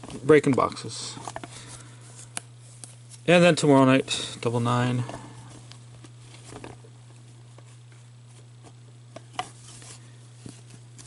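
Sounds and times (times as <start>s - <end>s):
steady low hum: 0.0s - 11.0s
paper cards handled: 4.9s - 11.0s.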